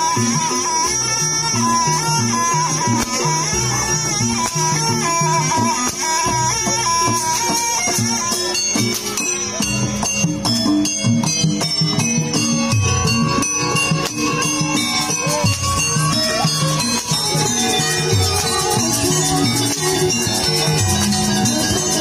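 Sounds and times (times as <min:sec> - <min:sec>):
drum strokes: 0:00.0 - 0:22.0
jingling bells: 0:00.0 - 0:22.0
pitched melody line: 0:00.0 - 0:22.0.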